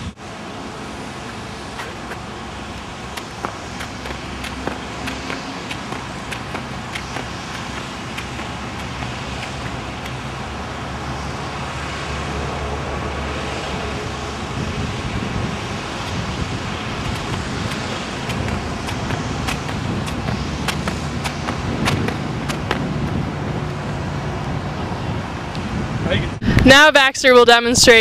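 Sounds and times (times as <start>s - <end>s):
low outdoor rumble: 0.0s - 26.6s
footsteps on rubber track: 1.2s - 10.7s, 15.4s - 23.3s.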